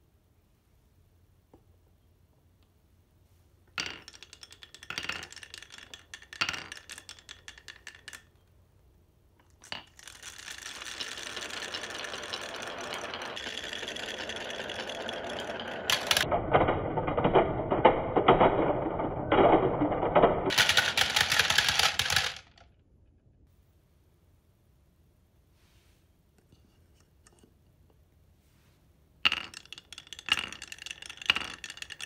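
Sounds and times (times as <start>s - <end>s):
marbles dropping into toy drums: 3.8s - 8.5s, 9.4s - 22.7s, 29.2s - 32.0s
marbles rolling on wooden tracks: 3.8s - 8.5s, 9.4s - 22.8s, 29.2s - 32.0s.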